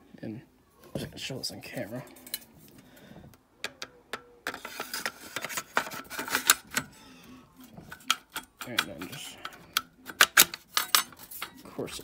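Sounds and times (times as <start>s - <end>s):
shotgun parts clicking and rattling: 3.6s - 12.0s.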